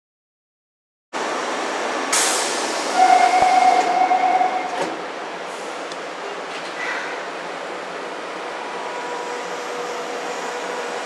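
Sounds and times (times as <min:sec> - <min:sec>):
subway car interior: 0:01.2 - 0:11.0.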